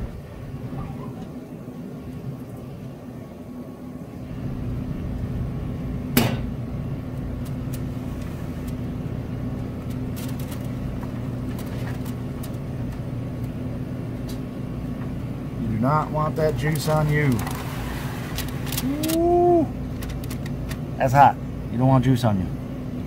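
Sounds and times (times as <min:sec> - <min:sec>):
grill fan humming: 0:00.0 - 0:23.0
sharp metallic clank: 0:06.2 - 0:06.5.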